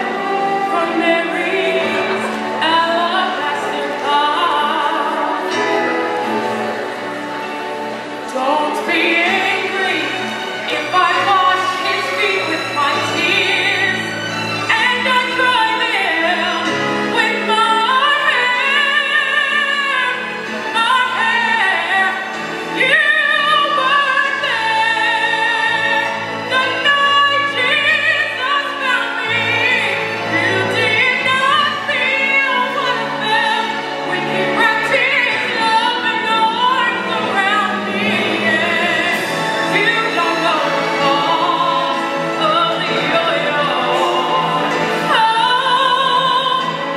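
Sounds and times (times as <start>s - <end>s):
recorded backing music: 0.0s - 46.9s.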